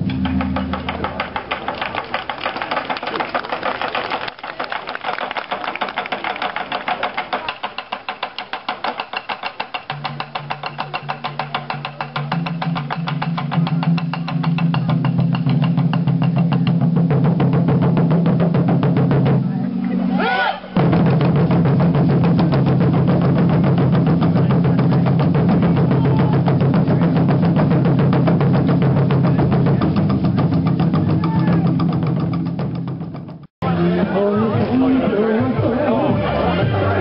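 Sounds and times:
taiko drums beaten fast: 0.0s - 4.1s, 5.5s - 19.5s, 20.8s - 33.5s.

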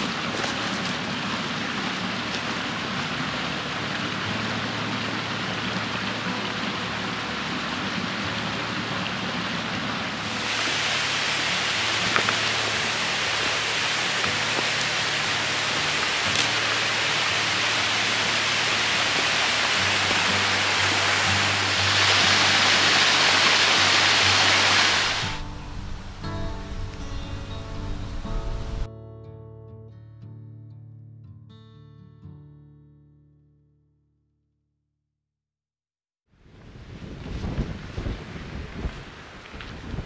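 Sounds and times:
rushing water: 0.0s - 28.9s, 36.4s - 40.0s.

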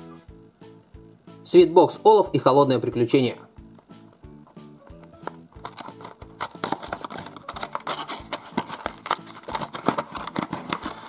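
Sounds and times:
background music with steady beat: 0.0s - 11.0s
cardboard box tearing: 5.6s - 11.0s.

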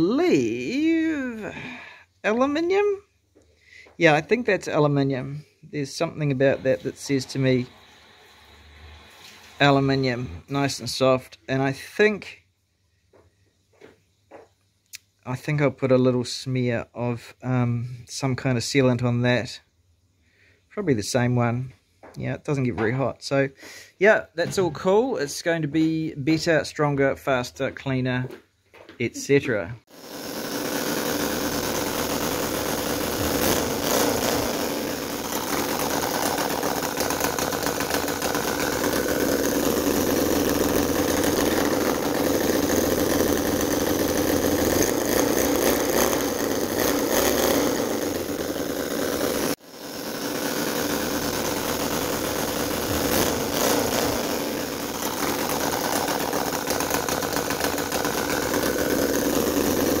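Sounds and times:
model engine revving and misfiring: 29.9s - 60.0s.

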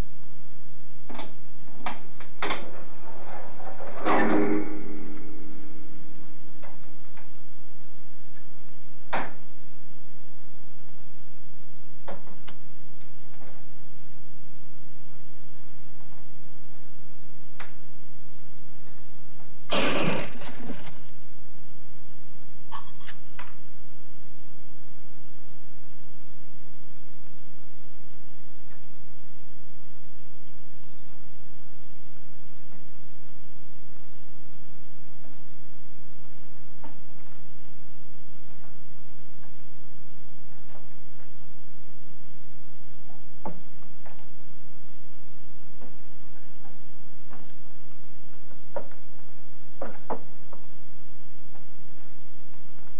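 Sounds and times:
tape hum and hiss: 0.0s - 52.9s
faint scratching: 2.6s - 6.4s.

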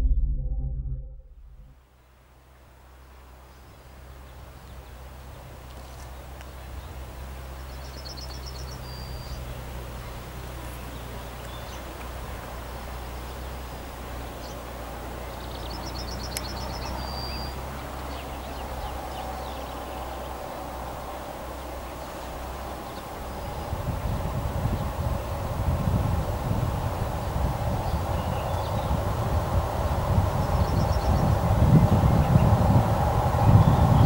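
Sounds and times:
steady low rumble: 0.0s - 1.8s, 14.8s - 34.0s
approaching electric freight train: 13.5s - 34.0s.

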